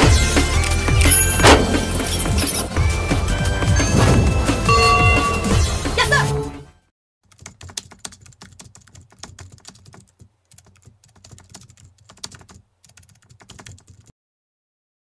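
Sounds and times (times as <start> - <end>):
music: 0.0 - 6.9.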